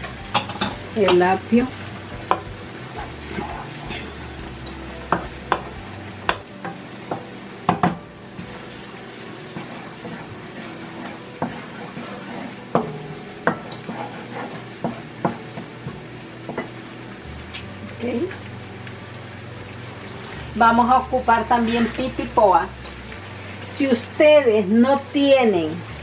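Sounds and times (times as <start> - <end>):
food sizzling: 0.0 - 26.0
wooden spoon tapping metal pot: 0.3 - 1.6, 2.2 - 3.7, 4.5 - 8.6, 9.6 - 16.8.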